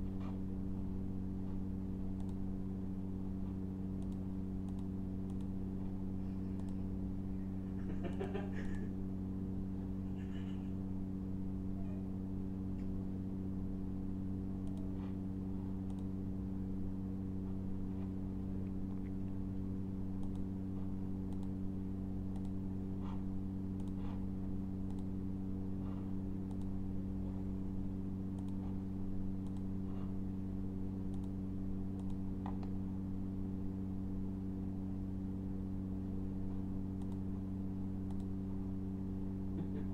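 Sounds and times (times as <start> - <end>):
low electrical hum: 0.0 - 39.9
computer mouse clicks: 2.2 - 2.4, 4.0 - 5.5, 6.6 - 6.8, 14.6 - 15.0, 15.8 - 16.1, 20.2 - 20.5, 21.3 - 21.6, 22.3 - 23.2, 23.8 - 24.2, 24.8 - 25.1, 26.4 - 26.8, 28.3 - 28.8, 29.4 - 30.0, 31.1 - 31.4, 32.0 - 32.8, 37.0 - 37.3, 38.0 - 38.3.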